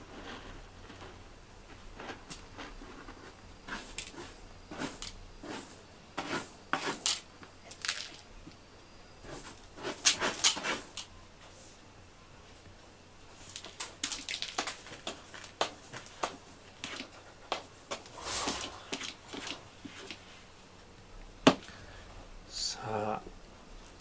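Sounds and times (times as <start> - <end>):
cat scratching in litter: 2.0 - 7.2, 9.2 - 10.9.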